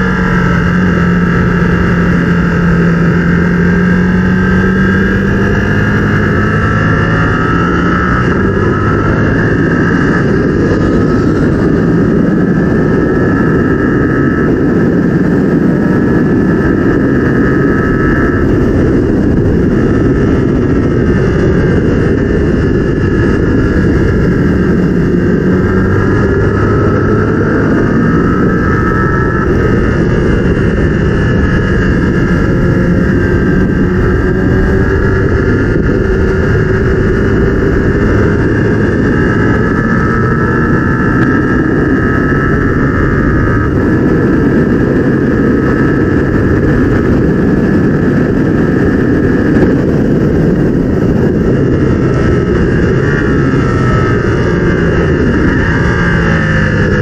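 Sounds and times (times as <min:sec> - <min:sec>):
motorcycle engine revving: 0:00.0 - 0:57.0
steady rushing noise: 0:00.0 - 0:57.0.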